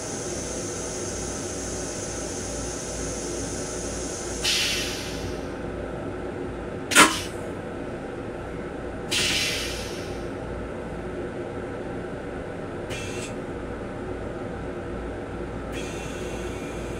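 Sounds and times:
sudden hisses: 0.0 - 5.5, 9.1 - 10.2
railcar hum: 0.0 - 16.9.

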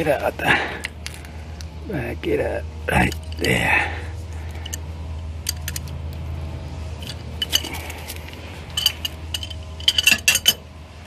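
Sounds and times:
low hum: 0.0 - 11.0
metallic clinks of tools: 8.7 - 10.6.

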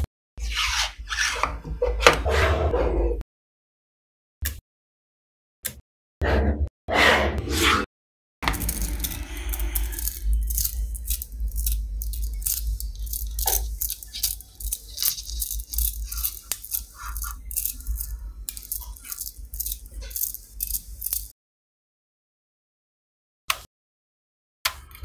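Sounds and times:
magnet balls clicking: 8.5 - 21.3.

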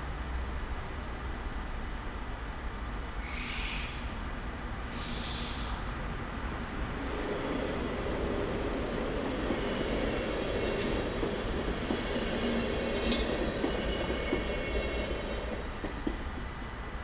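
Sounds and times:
train rumble: 0.0 - 17.0
short bursts of hiss: 3.2 - 4.2, 4.8 - 5.9.

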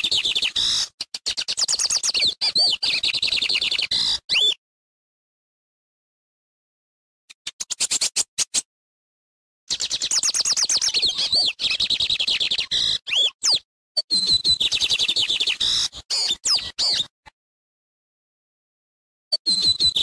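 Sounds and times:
bird singing: 0.0 - 4.6, 9.7 - 17.1, 19.3 - 20.0.

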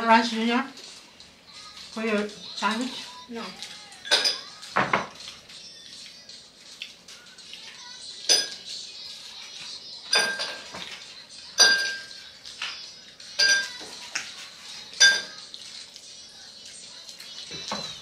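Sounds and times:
metal spoon clinking on glass: 4.0 - 4.5, 10.1 - 10.6, 11.6 - 12.2, 13.4 - 13.8, 15.0 - 15.4.

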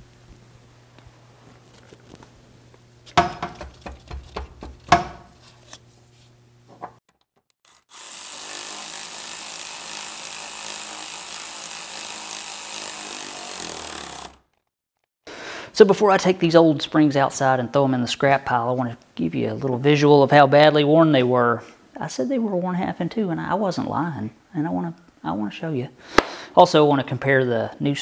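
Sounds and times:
power tool running with hiss: 7.9 - 14.4.

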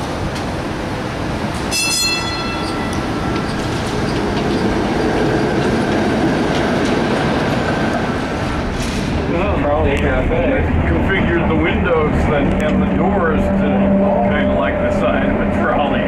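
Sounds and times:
streetcar wheels rumbling on rails: 0.0 - 16.0
high ringing tone: 1.7 - 3.8
high wheel squeal: 1.7 - 5.8.

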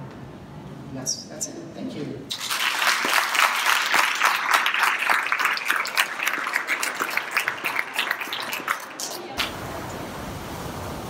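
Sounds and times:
audience applauding: 2.3 - 9.6.

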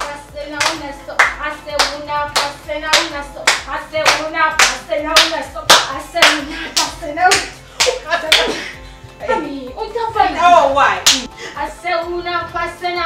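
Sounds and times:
hands clapping in rhythm: 0.0 - 8.6, 11.0 - 11.3.

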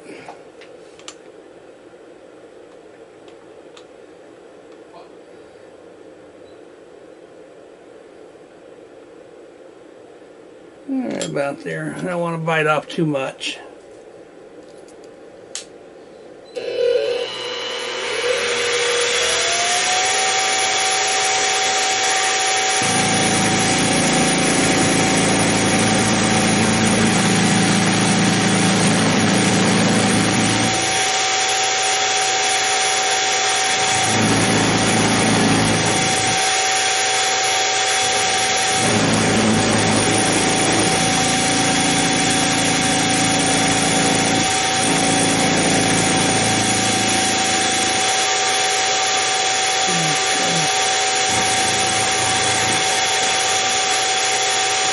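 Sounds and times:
mill spindle whine: 16.5 - 54.9
end mill cutting metal: 16.6 - 54.9.

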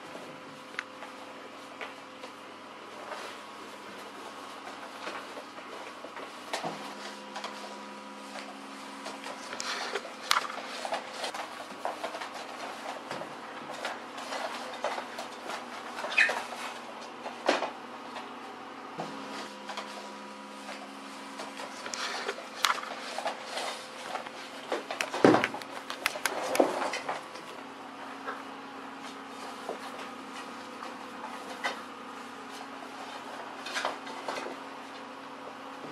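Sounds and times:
paws scraping on hard floor: 19.1 - 27.6.

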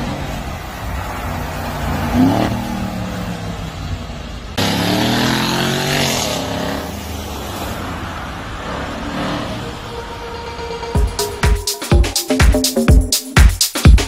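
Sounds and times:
car engine accelerating: 0.0 - 11.1.

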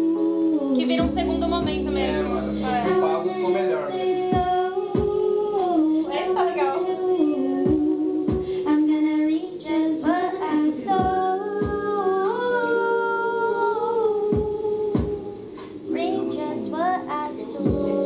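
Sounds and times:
held keyboard chords: 0.0 - 18.0
woman singing into microphone: 0.0 - 18.0
bass drum thumps: 0.9 - 3.0, 4.3 - 5.4, 7.6 - 8.6, 11.0 - 12.0, 14.3 - 15.3, 17.7 - 18.0.

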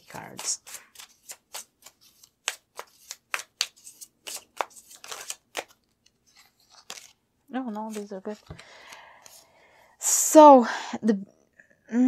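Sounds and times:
cards being shuffled: 0.0 - 9.4.

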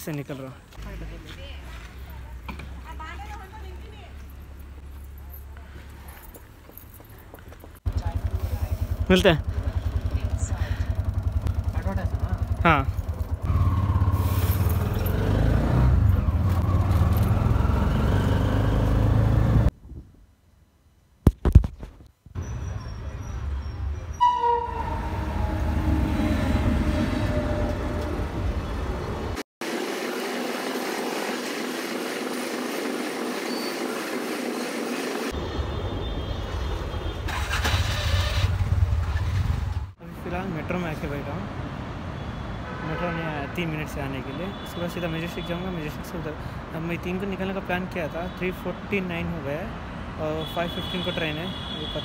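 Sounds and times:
city traffic: 0.0 - 19.8, 22.3 - 52.0
auto-rickshaw engine running: 7.8 - 19.7, 27.5 - 35.4, 37.0 - 40.0.

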